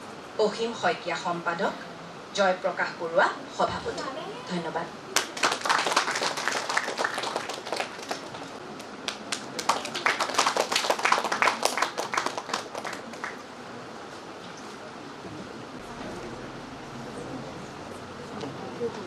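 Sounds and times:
audience applauding: 5.1s - 13.5s.

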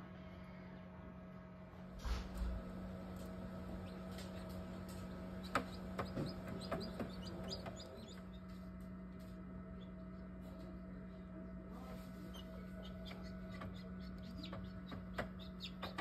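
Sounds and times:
incubator low hum: 0.0s - 16.0s
chick peeping: 3.5s - 8.5s, 12.1s - 16.0s.

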